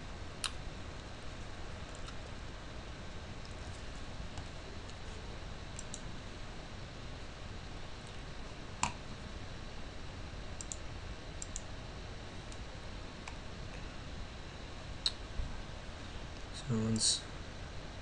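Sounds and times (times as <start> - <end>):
low background hiss: 0.0 - 18.0
computer mouse clicking: 5.8 - 6.1, 10.6 - 10.8, 11.4 - 11.7.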